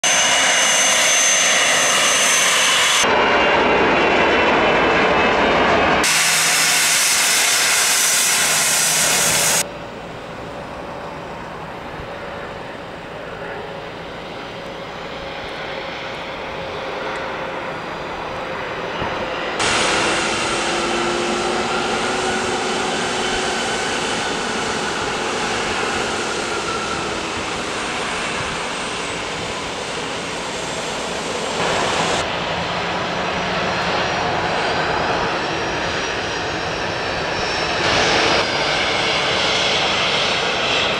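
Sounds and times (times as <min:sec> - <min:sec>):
loud hissing jet: 0:00.0 - 0:03.1, 0:06.0 - 0:09.7, 0:18.5 - 0:40.9
jet engines whining: 0:00.0 - 0:40.9.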